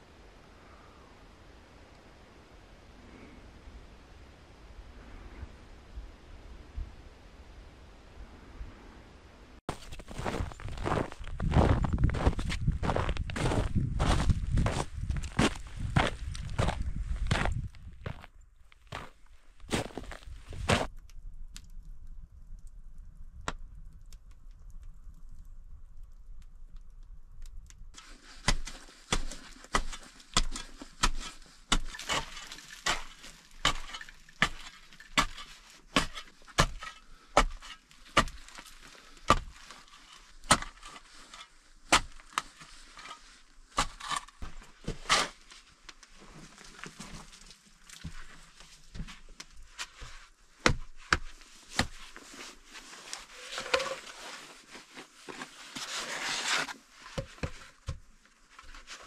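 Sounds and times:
axe chopping wood: 28.4s - 35.4s, 36.0s - 38.6s, 39.3s - 39.6s, 40.4s - 40.8s, 50.6s - 52.0s
scraping and rustling: 51.4s - 57.8s.

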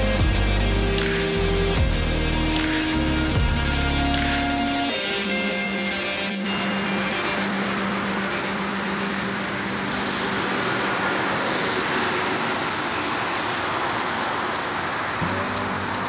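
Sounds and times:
music track: 0.0s - 11.6s, 15.2s - 16.0s
road traffic rushing: 0.0s - 16.0s.

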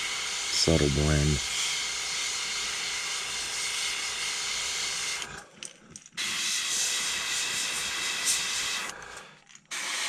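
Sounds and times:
airbrush spraying hiss: 0.0s - 5.2s, 6.2s - 8.9s.

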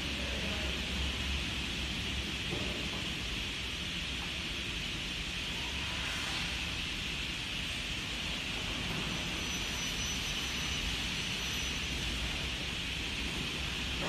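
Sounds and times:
factory hall rushing noise: 0.0s - 14.0s.

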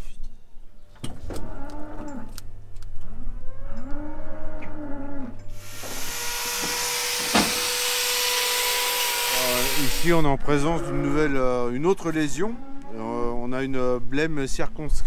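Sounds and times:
cow mooing: 1.4s - 2.4s, 3.1s - 5.4s, 10.5s - 11.4s
electric grinder whining: 5.6s - 10.2s
sharp knocks: 5.8s - 7.8s.

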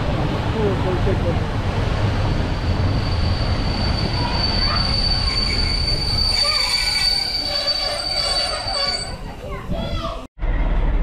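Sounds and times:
wheels rumbling on rails: 0.0s - 11.0s
train wheels squealing: 2.4s - 9.3s.

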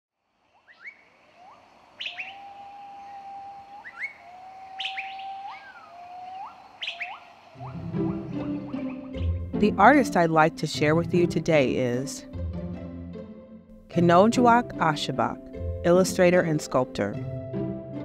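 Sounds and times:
long held whistle notes: 0.6s - 9.2s
upward-flicking chirps: 3.8s - 9.2s.

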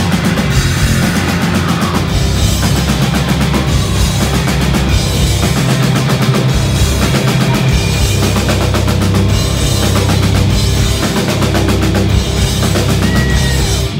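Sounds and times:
fast drumming and cymbals: 0.0s - 13.9s
live rock band: 0.0s - 13.9s.

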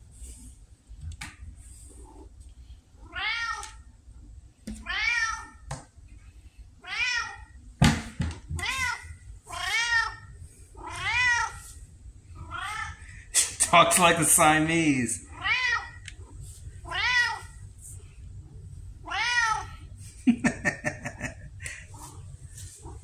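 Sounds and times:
cat meowing: 3.0s - 3.8s, 4.8s - 5.6s, 6.8s - 7.6s, 8.6s - 11.6s, 12.4s - 13.0s, 15.3s - 16.0s, 16.8s - 17.6s, 19.0s - 19.8s.

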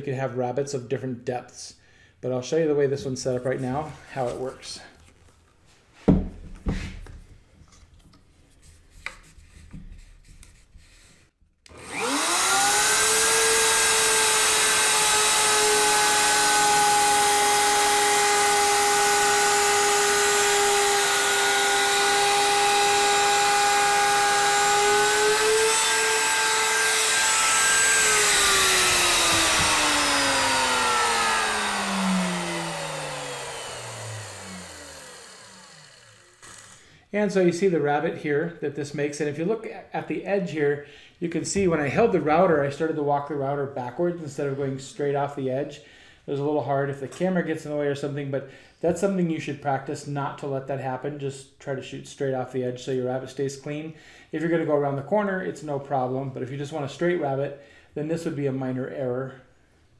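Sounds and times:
router spinning down: 11.7s - 36.8s
router whining while cutting: 11.7s - 36.9s.

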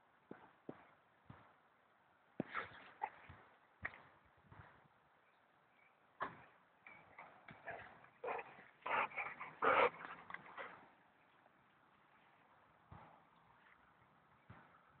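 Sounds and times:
dog making short vocal sounds: 8.2s - 10.1s.

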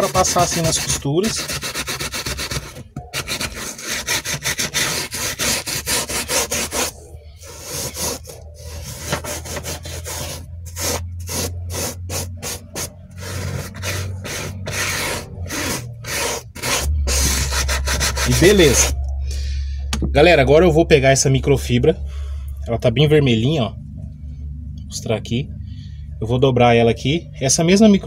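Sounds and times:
brush scrubbing leather: 0.0s - 19.0s.

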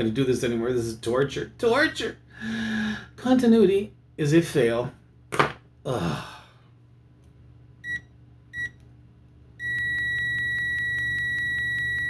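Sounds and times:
multimeter high-pitched beep: 9.6s - 12.0s.

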